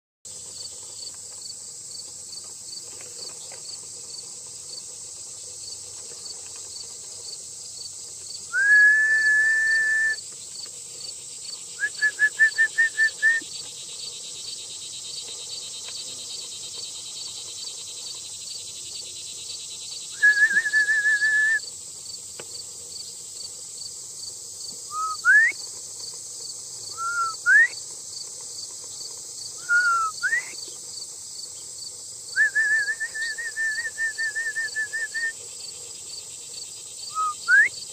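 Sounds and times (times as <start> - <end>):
insects chirping: 0.3 - 37.9
shepherd's whistle: 8.5 - 10.2, 11.8 - 13.4, 20.2 - 21.6, 24.9 - 25.6, 26.9 - 27.8, 29.6 - 30.6, 32.4 - 35.4, 37.1 - 37.8.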